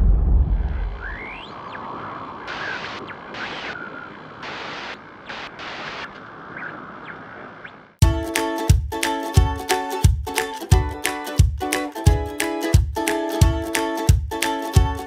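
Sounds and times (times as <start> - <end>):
static glitch bursts: 0.8 - 7.9
whistling pitch glides: 1.0 - 1.8.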